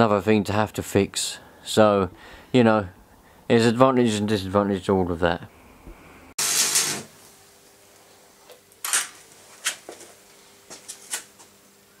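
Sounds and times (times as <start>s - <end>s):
faint steady hum: 0.0s - 12.0s
welding arc crackle: 6.4s - 7.4s.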